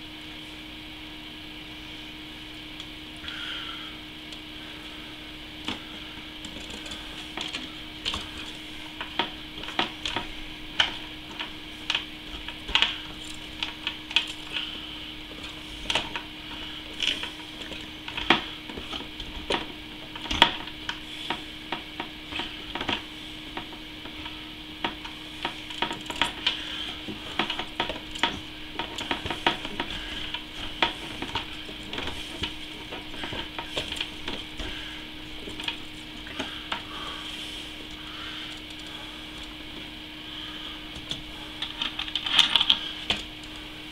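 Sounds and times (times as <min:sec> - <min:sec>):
steady low hum: 0:00.0 - 0:43.9
hands clicking and rubbing tubing: 0:05.6 - 0:39.8.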